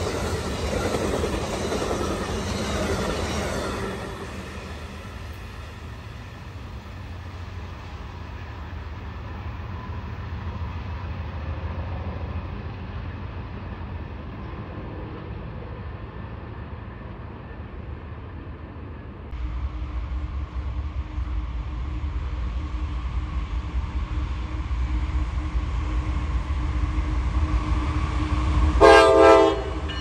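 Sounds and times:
wheels on rails: 0:00.0 - 0:16.0
train rumble: 0:00.0 - 0:30.0.

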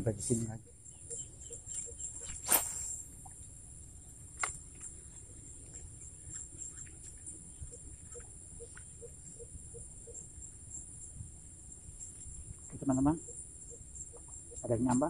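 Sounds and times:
high insect drone: 0:00.0 - 0:15.0
sharp click: 0:02.4 - 0:03.0
faint ticks: 0:04.3 - 0:10.2, 0:13.7 - 0:15.0.

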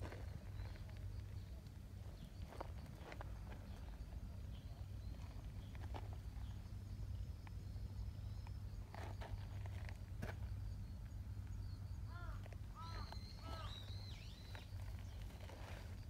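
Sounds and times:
low steady rumble: 0:00.0 - 0:16.0
birds chirping: 0:07.4 - 0:15.9
bird whistled call: 0:12.8 - 0:14.8.

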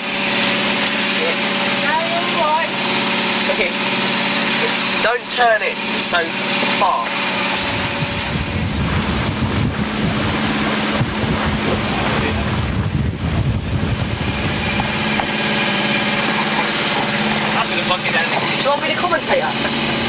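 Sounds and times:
motor boat engine running: 0:00.0 - 0:20.0
wind buffeting microphone: 0:07.2 - 0:20.0.

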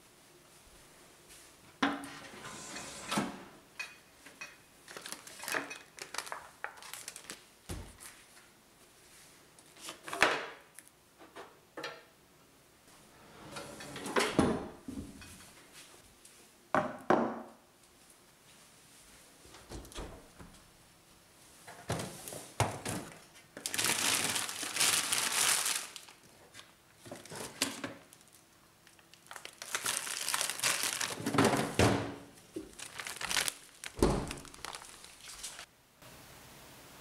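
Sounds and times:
cupboard and wire rack opening: 0:02.0 - 0:03.6, 0:13.2 - 0:15.2
packets rustling: 0:04.8 - 0:07.4, 0:23.6 - 0:26.2, 0:27.1 - 0:31.7, 0:32.6 - 0:35.7
packets and tins set on table: 0:32.6 - 0:35.7.

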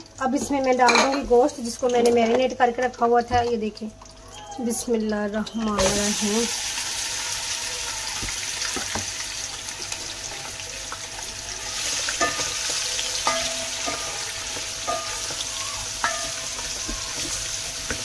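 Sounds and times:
chicken sizzling in hot oil: 0:04.2 - 0:18.0
spatula knocking against pot: 0:13.3 - 0:18.0.

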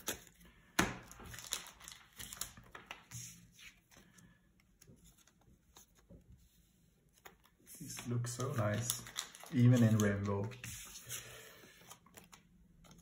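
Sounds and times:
cards clicking and sliding: 0:07.2 - 0:13.0.

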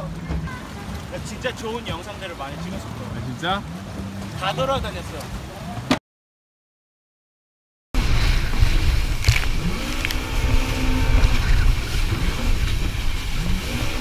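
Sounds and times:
jet ski engine: 0:00.0 - 0:06.0, 0:08.0 - 0:14.0
water rushing and splashing: 0:00.0 - 0:06.0, 0:08.0 - 0:14.0
wind buffeting microphone: 0:08.0 - 0:14.0.

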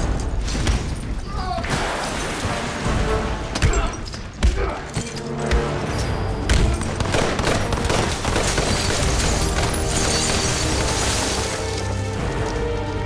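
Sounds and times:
tense orchestral film score: 0:00.0 - 0:13.0
rapid gunfire: 0:06.9 - 0:10.3.

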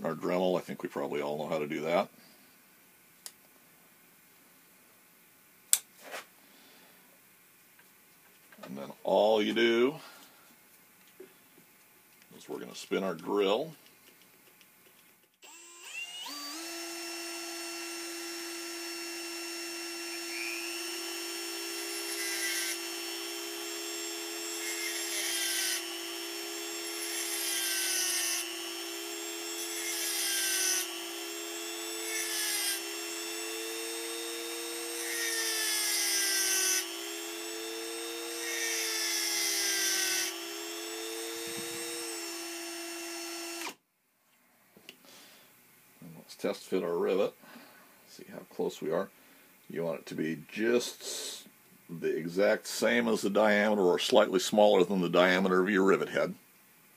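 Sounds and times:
cordless drill running: 0:15.4 - 0:43.8
rotary tool whine: 0:15.4 - 0:43.8.

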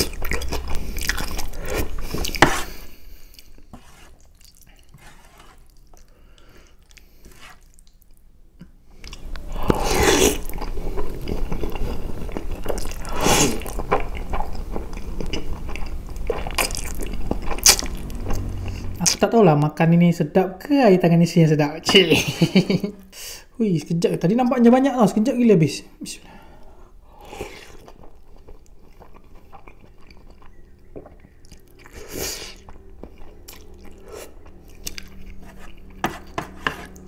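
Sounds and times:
wet chewing: 0:00.0 - 0:08.2, 0:09.0 - 0:19.0, 0:27.2 - 0:37.0
noodles slurped: 0:09.1 - 0:14.6.

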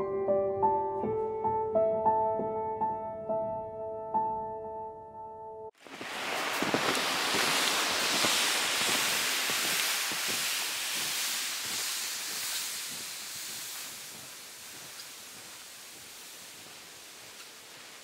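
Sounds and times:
plastic sled dragging on snow: 0:05.8 - 0:18.0
snowshoes crunching through snow: 0:05.8 - 0:18.0.

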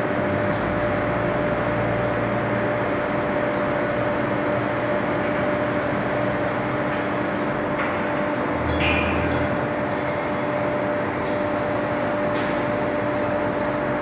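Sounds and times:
machinery hum: 0:00.0 - 0:14.0.

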